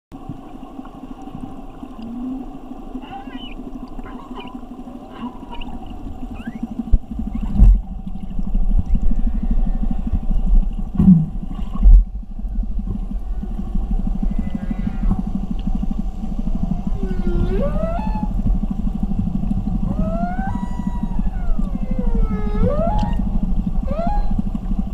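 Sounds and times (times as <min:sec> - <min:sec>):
low underwater rumbling hum: 0:00.1 - 0:24.9
whale squeaks and whistles: 0:03.0 - 0:07.6, 0:14.3 - 0:15.2, 0:16.7 - 0:18.4, 0:19.8 - 0:24.5.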